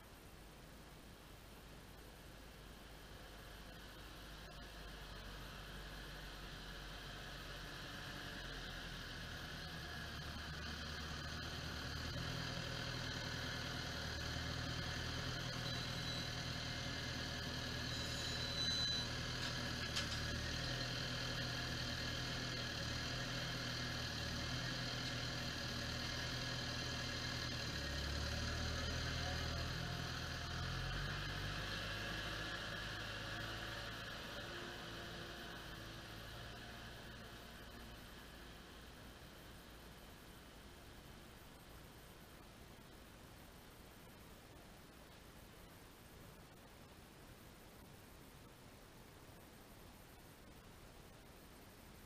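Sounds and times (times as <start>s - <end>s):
tractor diesel engine running: 2.9s - 41.0s.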